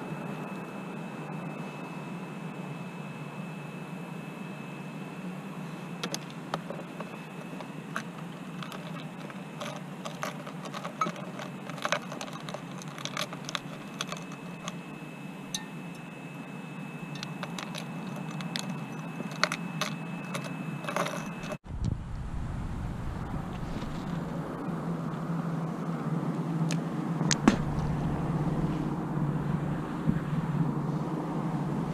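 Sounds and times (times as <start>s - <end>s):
low hum: 0.0s - 31.9s
thin high tone: 6.9s - 21.6s.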